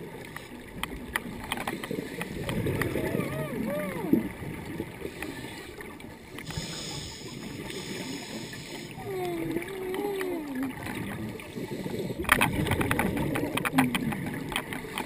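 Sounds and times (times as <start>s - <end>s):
low underwater crackle: 0.0s - 15.0s
wavering low moan: 2.9s - 4.4s
scuba regulator hiss: 6.5s - 8.9s.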